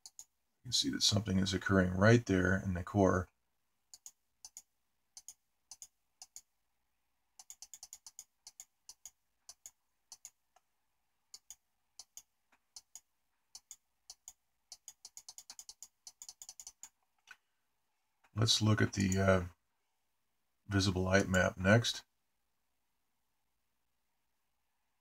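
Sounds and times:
computer mouse clicking: 0.0 - 0.3, 3.9 - 6.5, 7.4 - 10.7, 11.3 - 17.4.

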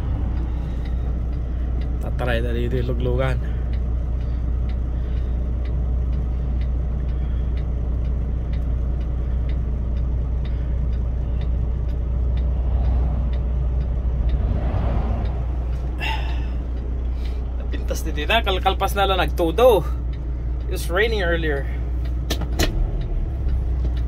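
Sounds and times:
trucks passing rushing: 0.0 - 2.2, 9.1 - 20.7
diesel engine drone: 0.0 - 24.0
faint regular ticking: 0.0 - 24.0
road noise: 0.0 - 24.0.

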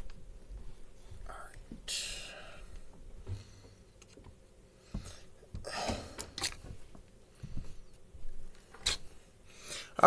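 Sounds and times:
clicks and scrapes of handling wire: 4.0 - 4.4, 6.2 - 7.0.

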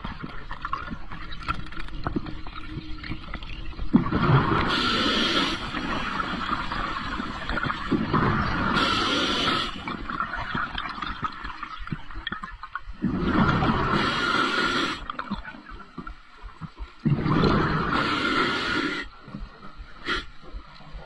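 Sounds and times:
underwater water rushing and gurgling: 0.0 - 21.0.

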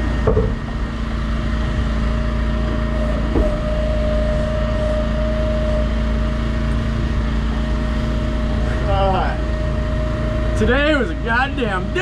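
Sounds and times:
boat engine running: 0.0 - 12.0
thin steady whine: 0.0 - 12.0
short knock: 3.3 - 3.7.

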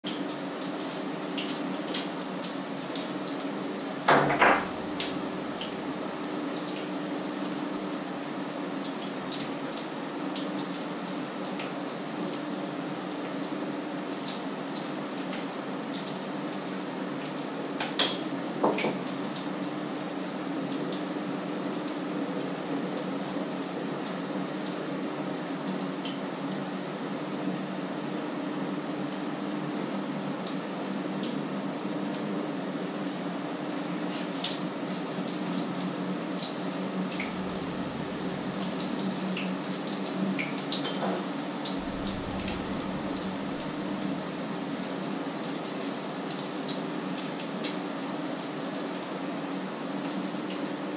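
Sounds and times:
low steady hum: 4.6 - 6.0, 37.0 - 39.4, 41.7 - 44.8.

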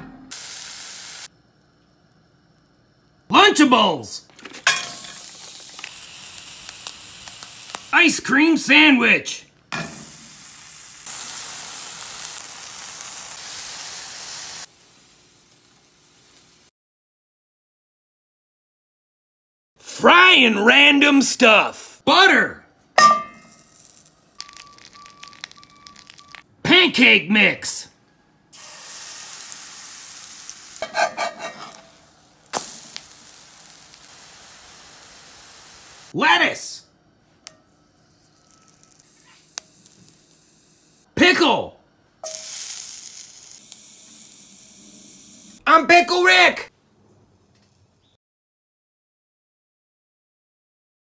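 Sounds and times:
food sizzling in a skillet: 0.3 - 1.4, 4.6 - 8.0, 9.8 - 16.7, 23.4 - 26.4, 28.6 - 36.2, 38.0 - 41.1, 42.2 - 45.6.

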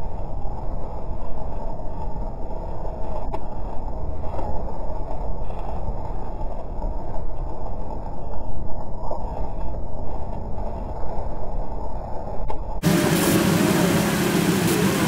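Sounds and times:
road and tyre noise: 0.0 - 15.0.

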